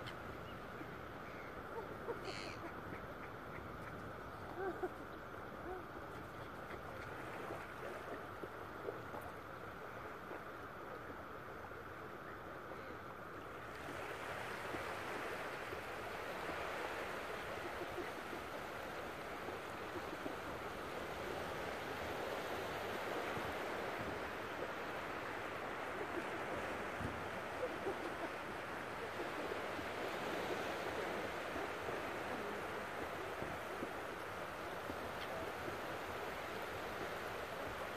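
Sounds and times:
wind: 0.0 - 37.9
ocean surf: 13.5 - 37.9.

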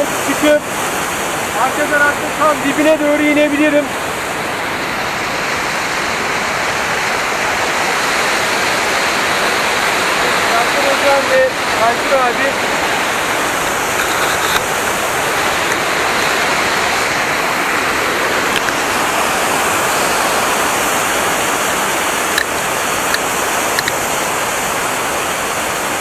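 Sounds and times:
waterfall rushing over boulders: 0.0 - 26.0
small clicks: 23.8 - 24.0.

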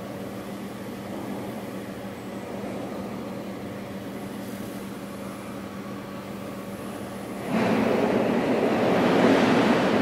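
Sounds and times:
diesel generator humming: 0.0 - 10.0.

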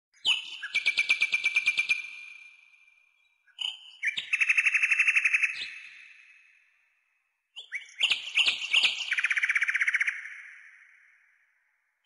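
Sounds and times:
songbird singing with trills: 0.2 - 2.2, 3.2 - 6.0, 7.6 - 10.8.

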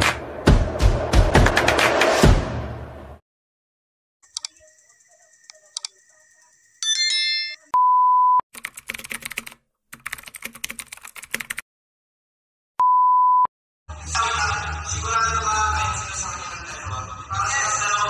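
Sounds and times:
test-tone beep: 6.8 - 8.4
computer keyboard typing: 8.6 - 11.6.

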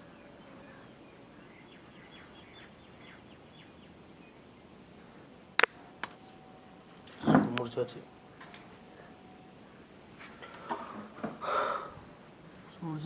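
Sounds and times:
faint bird chirps: 0.0 - 4.7.

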